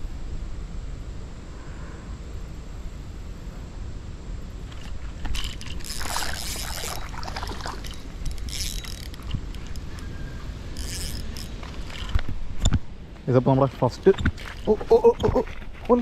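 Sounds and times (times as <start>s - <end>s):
steady low rumble: 0.0s - 16.0s
water splashing: 5.4s - 8.3s.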